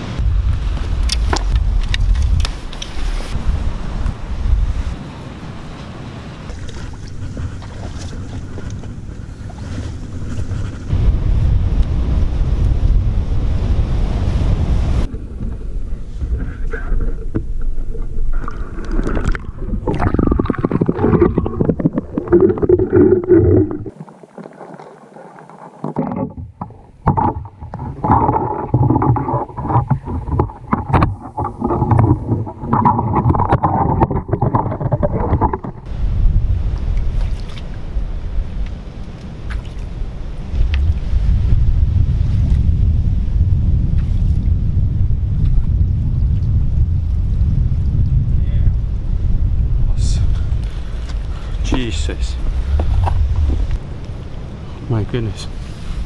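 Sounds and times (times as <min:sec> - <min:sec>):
wind buffeting microphone: 0:00.0 - 0:24.0, 0:26.5 - 0:56.0
swirling water underwater: 0:12.1 - 0:38.2
pole knocking and scraping rocks: 0:25.7 - 0:35.9, 0:52.6 - 0:53.8.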